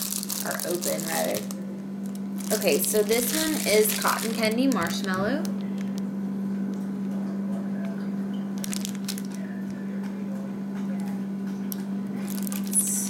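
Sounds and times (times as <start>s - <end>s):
cellophane bag crinkling: 0.0s - 6.0s, 8.6s - 9.5s, 12.2s - 13.0s
steady low hum: 0.0s - 13.0s.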